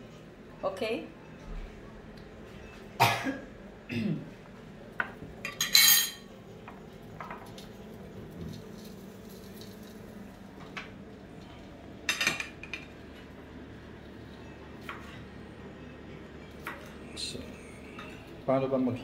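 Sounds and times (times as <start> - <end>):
utensils and dishes clattering: 5.4 - 6.3, 12.1 - 13.0.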